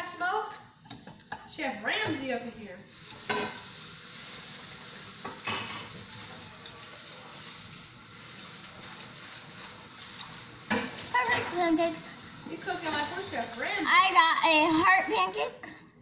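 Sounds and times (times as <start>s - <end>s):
pancakes sizzling in a pan: 2.2s - 15.4s
utensil scraping a pan: 3.0s - 11.8s.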